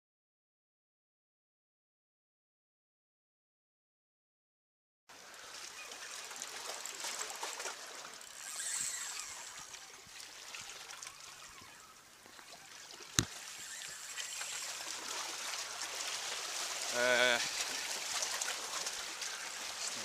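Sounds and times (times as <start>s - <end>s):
sea water lapping on rocks: 5.4s - 11.6s, 12.2s - 20.0s.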